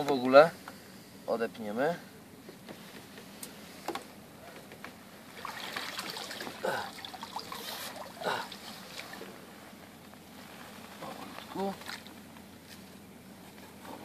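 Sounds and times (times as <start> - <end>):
water trickling and splashing: 5.3 - 9.5.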